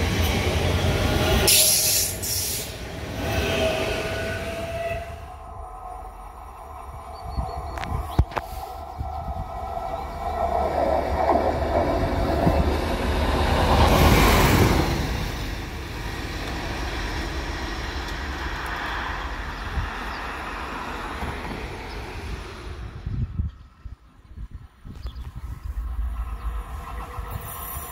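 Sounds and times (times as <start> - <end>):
rail vehicle passing on track: 0.0 - 27.9.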